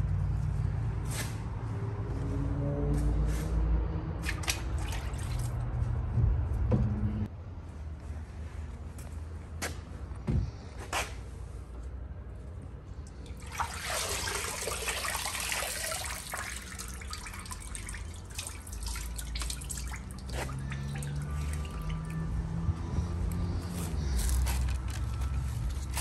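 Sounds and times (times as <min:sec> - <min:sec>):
drips pattering into water: 0:13.0 - 0:22.3
liquid sloshing and pouring off: 0:13.1 - 0:22.2.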